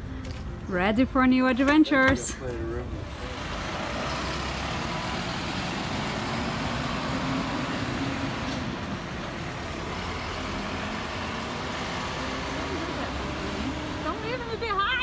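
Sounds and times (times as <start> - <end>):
road noise: 0.0 - 15.0
truck engine running: 3.1 - 15.0.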